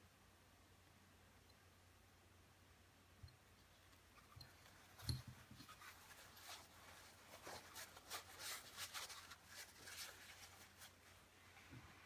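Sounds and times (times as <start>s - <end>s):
light scratching and rubbing: 3.6s - 12.0s.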